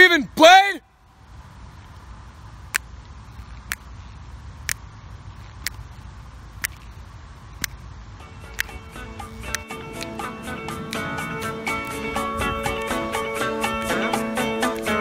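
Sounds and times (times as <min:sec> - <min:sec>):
finger snaps: 0:03.7 - 0:03.9, 0:06.6 - 0:06.8, 0:08.5 - 0:08.8, 0:09.5 - 0:10.2, 0:14.6 - 0:15.0
low rumble: 0:08.9 - 0:13.6.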